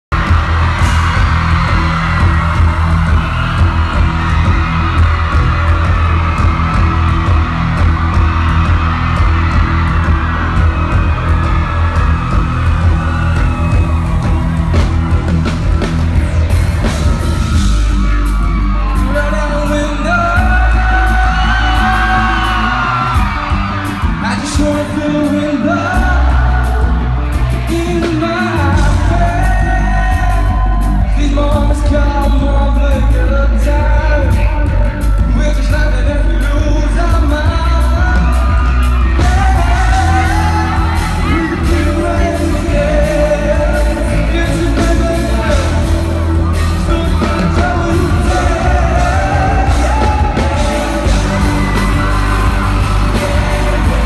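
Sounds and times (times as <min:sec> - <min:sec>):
live band with heavy bass: 0:00.0 - 0:54.0
audience yelling: 0:00.1 - 0:31.5, 0:36.3 - 0:54.0
man singing lead vocal: 0:18.9 - 0:54.0.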